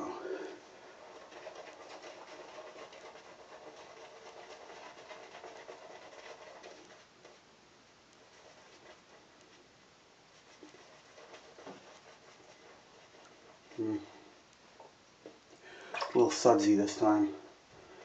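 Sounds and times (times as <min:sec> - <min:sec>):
shaving brush scratching on stubble: 0:00.9 - 0:07.4, 0:10.4 - 0:13.9.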